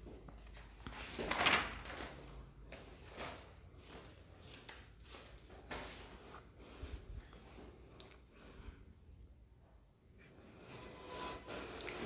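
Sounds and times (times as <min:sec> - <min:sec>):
handling scrape: 0:10.6 - 0:12.0.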